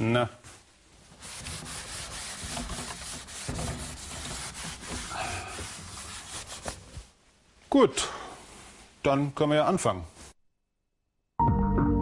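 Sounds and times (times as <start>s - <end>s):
eraser rubbing on chalkboard: 1.1s - 7.1s.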